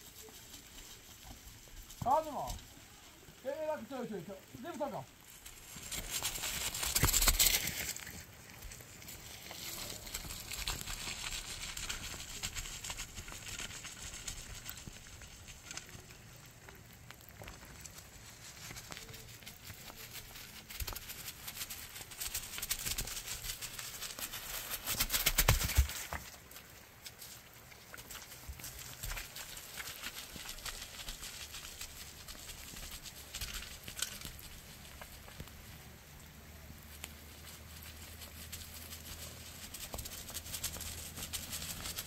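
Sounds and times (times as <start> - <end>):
stone roller crunching on earth: 0.0 - 42.0.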